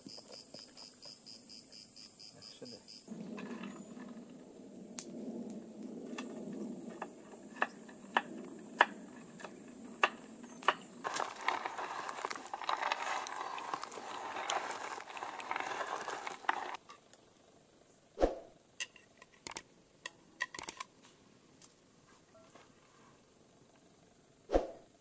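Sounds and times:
hands crumbling walnuts: 0:10.0 - 0:16.8.

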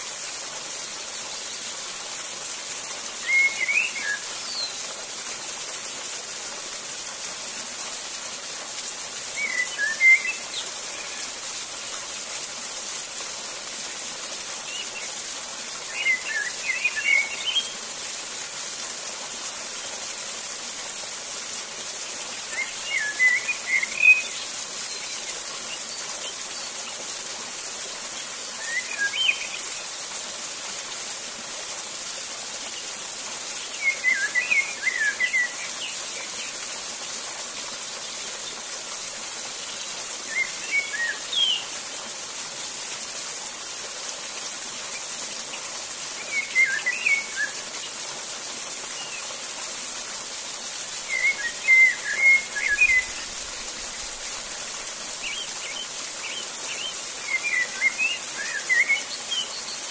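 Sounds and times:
waterfall rushing: 0:00.0 - 0:59.9
songbird singing: 0:03.2 - 0:04.8, 0:09.4 - 0:11.2, 0:15.9 - 0:17.7, 0:22.5 - 0:26.8, 0:28.6 - 0:29.7, 0:33.7 - 0:36.5, 0:40.3 - 0:41.7, 0:46.2 - 0:47.6, 0:51.0 - 0:54.2, 0:55.2 - 0:59.9.

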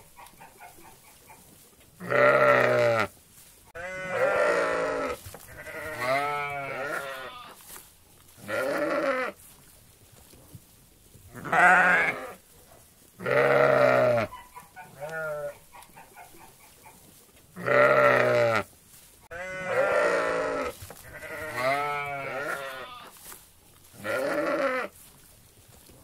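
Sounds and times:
sheep bleating: 0:02.0 - 0:03.1, 0:03.8 - 0:07.6, 0:08.4 - 0:09.4, 0:11.4 - 0:12.4, 0:13.2 - 0:15.6, 0:17.6 - 0:18.7, 0:19.3 - 0:23.2, 0:24.0 - 0:24.9.

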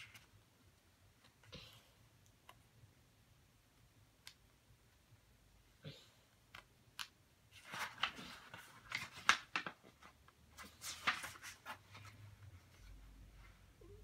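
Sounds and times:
book pages rustling: 0:07.5 - 0:13.6.

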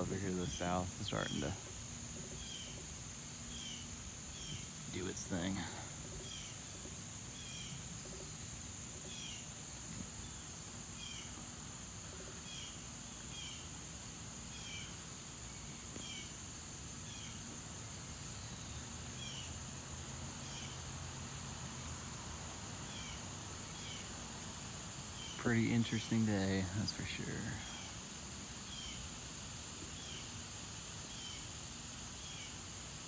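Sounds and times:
bird chirping: 0:00.0 - 0:11.4
insects droning: 0:00.0 - 0:33.0.

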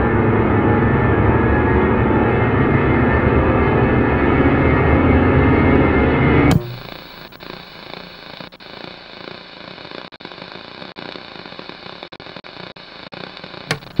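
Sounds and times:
steady hiss: 0:06.5 - 0:14.0.

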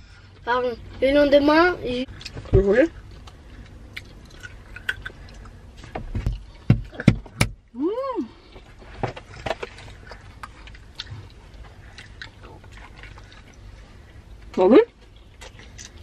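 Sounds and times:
chewing and mouth smacks: 0:02.1 - 0:07.0, 0:08.5 - 0:16.0.

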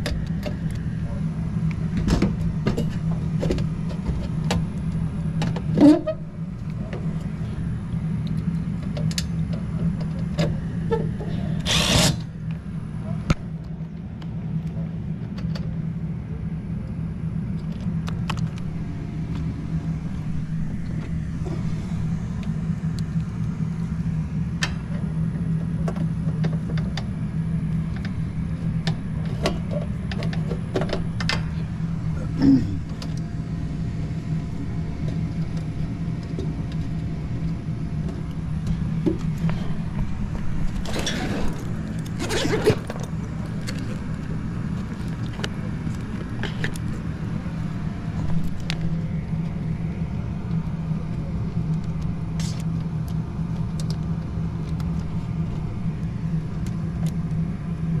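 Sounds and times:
low machine hum: 0:00.0 - 0:58.0
tool bag zipper opening: 0:11.6 - 0:12.2, 0:40.8 - 0:43.0.

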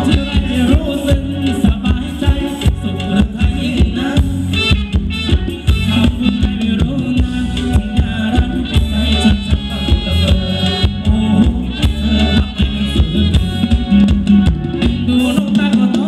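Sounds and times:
live band playing dance song: 0:00.0 - 0:16.0
percussion beat: 0:00.0 - 0:16.0
person singing: 0:05.7 - 0:16.0.

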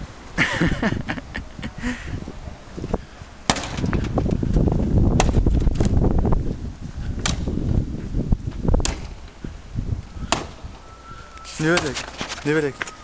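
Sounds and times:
wooden lath whacking sculpture: 0:05.1 - 0:06.0.

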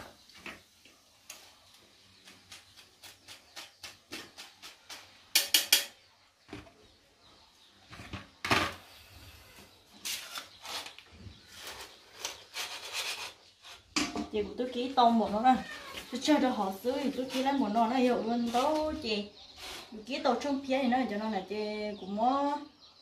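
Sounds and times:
utensils knocking against pan: 0:04.9 - 0:06.0, 0:14.0 - 0:14.3.

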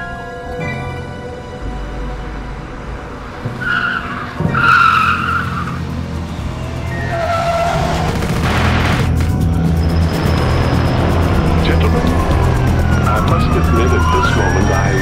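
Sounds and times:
car tyres screeching: 0:01.4 - 0:15.0.

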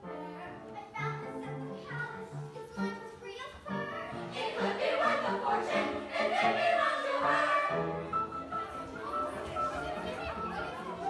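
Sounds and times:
young voices singing together: 0:00.4 - 0:11.0.

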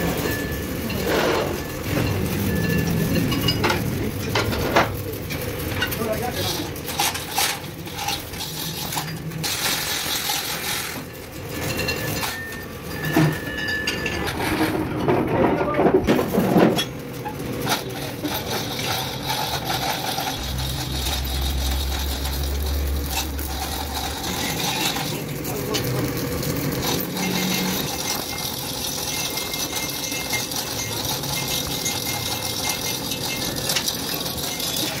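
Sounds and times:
metal parts clinking: 0:00.0 - 0:35.0
low hum: 0:20.0 - 0:25.0.

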